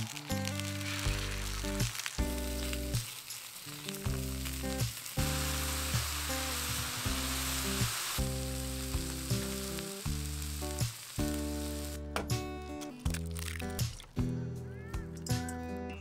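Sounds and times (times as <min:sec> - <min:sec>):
sausages and mushrooms sizzling in a pan: 0:00.0 - 0:12.1
background music with sustained notes: 0:00.0 - 0:16.0.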